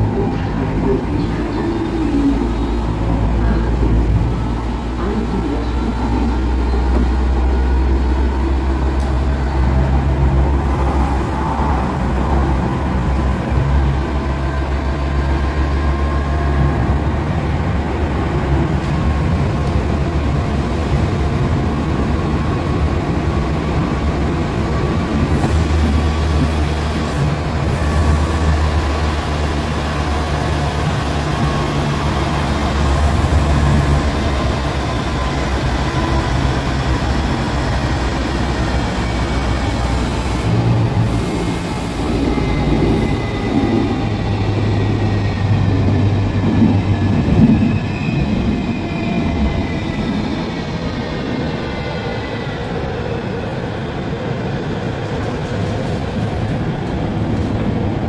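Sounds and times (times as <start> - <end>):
train running gear rumble: 0.0 - 58.0.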